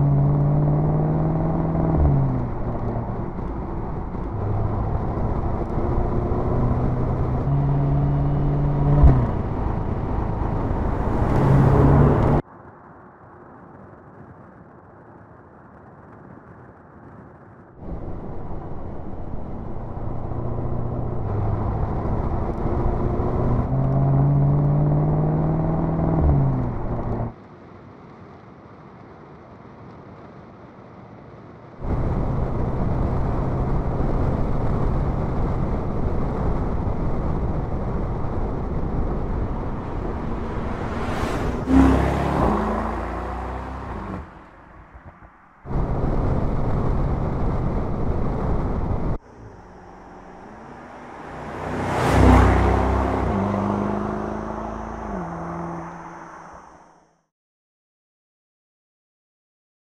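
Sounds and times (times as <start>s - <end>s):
car engine accelerating: 0.0s - 12.4s, 17.8s - 27.4s, 31.8s - 57.1s
car passing by: 6.7s - 12.4s, 37.4s - 48.0s, 49.0s - 57.1s.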